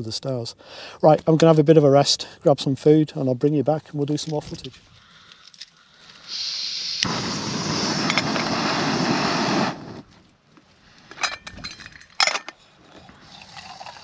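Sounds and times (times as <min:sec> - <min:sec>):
gas stove burner hissing: 0:06.2 - 0:10.0.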